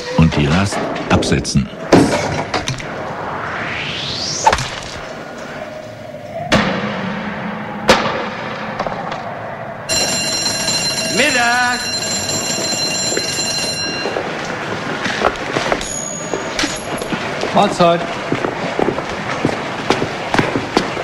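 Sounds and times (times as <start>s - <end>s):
high-pitched break signal: 9.9s - 14.4s.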